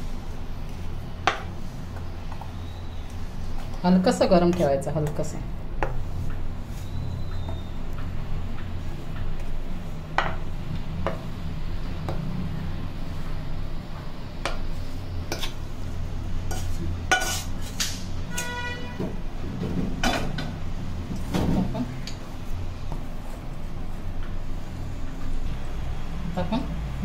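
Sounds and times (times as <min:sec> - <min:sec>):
steady low hum: 0:00.0 - 0:27.0
spatula scraping pan and bowl: 0:16.4 - 0:18.8.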